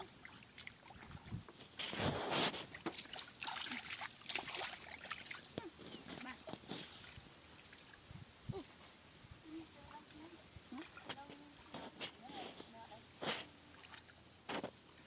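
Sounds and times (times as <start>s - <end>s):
feet wading through muddy water: 0.0s - 7.8s, 13.2s - 15.0s
water splashing: 0.0s - 8.0s, 13.3s - 14.3s
insect chirping: 0.0s - 15.0s.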